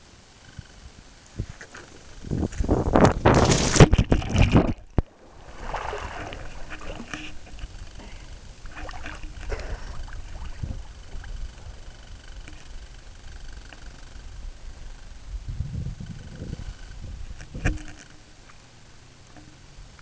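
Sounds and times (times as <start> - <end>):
water sloshing and lapping: 1.7 - 13.9, 17.3 - 18.7
person splashing into water: 3.2 - 7.1, 8.7 - 10.8.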